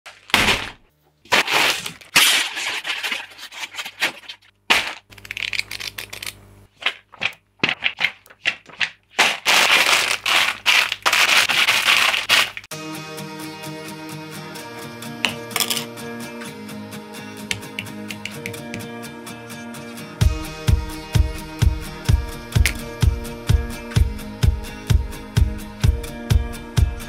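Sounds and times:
paper pages flicking: 0.1 - 12.7
plastic bags crinkling: 0.1 - 12.7
music: 12.7 - 27.0.

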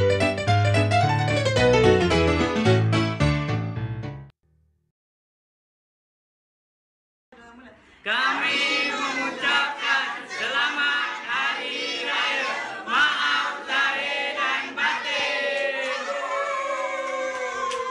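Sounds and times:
crowd shouting and cheering: 14.8 - 17.9.

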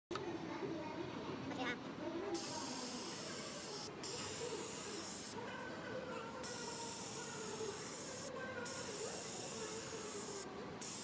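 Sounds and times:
compressed air hissing: 2.4 - 5.4, 6.4 - 11.0.

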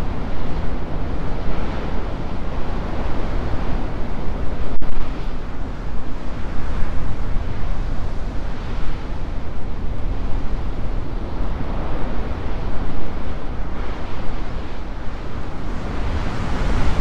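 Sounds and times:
ocean surf breaking on rocks: 5.3 - 17.0.

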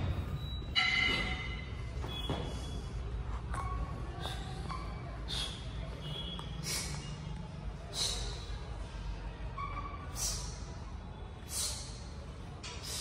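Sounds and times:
man breathing out sharply: 6.6 - 7.1, 7.9 - 8.5.

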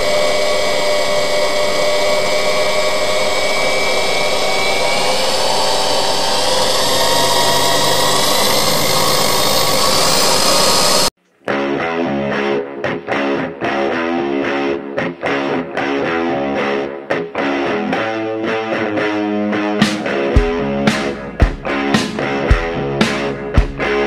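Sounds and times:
lathe motor whining hum: 0.0 - 11.1.

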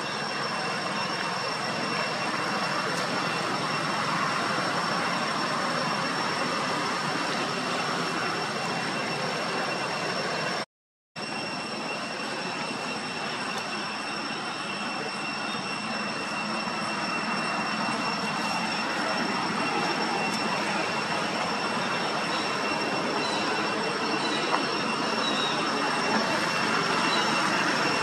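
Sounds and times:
high-pitched whine: 0.0 - 28.0
rushing background noise: 11.2 - 28.0.

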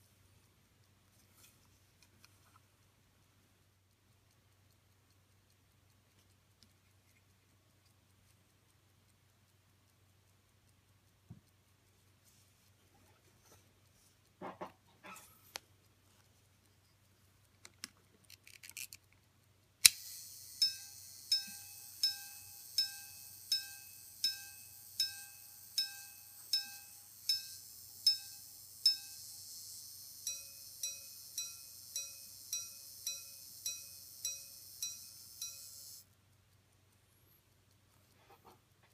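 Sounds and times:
faint high hiss: 0.0 - 38.9
pocket watch chiming on gongs: 20.6 - 36.0.

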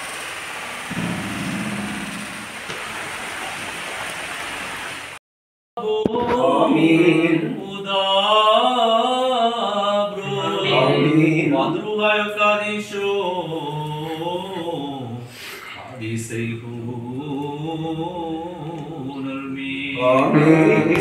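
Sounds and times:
steady rushing noise: 0.9 - 4.0
priest chanting prayer: 5.8 - 15.2, 15.9 - 21.0.

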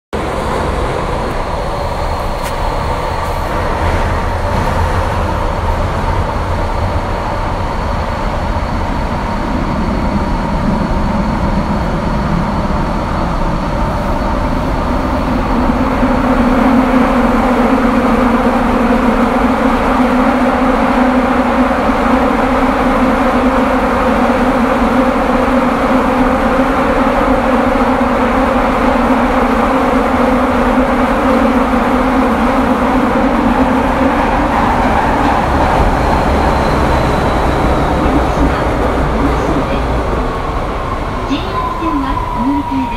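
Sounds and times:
train wheels rumbling on rails: 0.1 - 42.9
wheel flanges squealing on rail: 33.5 - 42.9.

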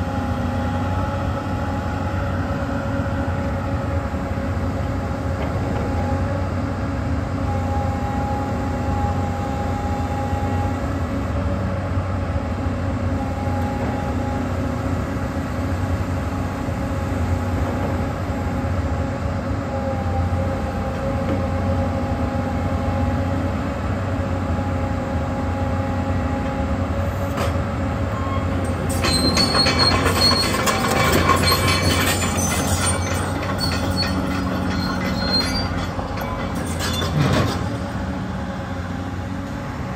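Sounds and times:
excavator diesel engine hum: 0.0 - 39.9
hydraulic hissing and squeals: 28.1 - 38.0.

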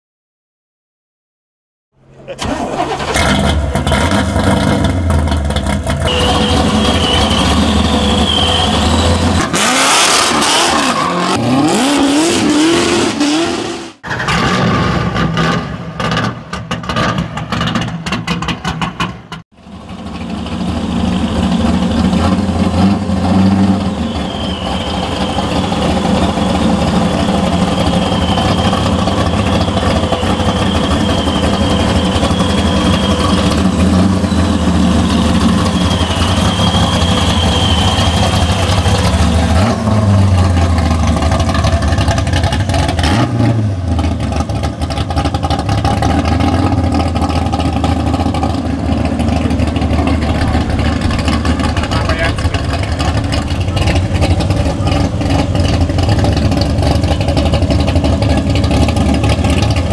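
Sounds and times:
loud engine revving: 2.4 - 17.9, 20.4 - 59.9
engine whine over exhaust: 5.0 - 9.5, 19.6 - 43.2.

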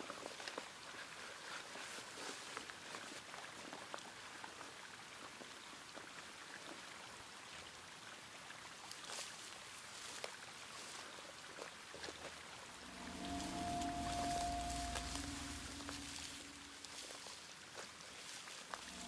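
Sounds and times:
light rustles and ticks: 0.0 - 7.0, 8.8 - 12.7
small stream running: 0.0 - 19.0.

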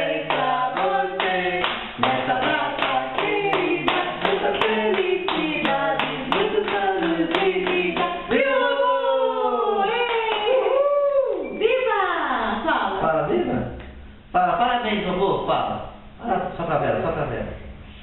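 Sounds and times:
hand clapping: 0.2 - 8.3
person singing: 2.0 - 8.4.

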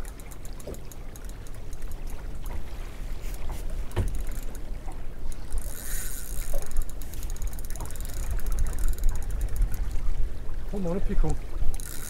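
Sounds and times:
fishing reel ticking: 0.0 - 2.4, 3.3 - 9.9, 11.6 - 12.0
water rumbling around boat: 0.0 - 12.0
wind: 0.0 - 12.0.

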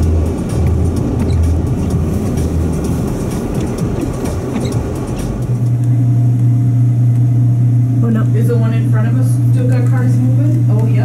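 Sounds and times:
car engine and tyres rumbling: 0.0 - 8.8
steady low hum: 0.0 - 11.0.

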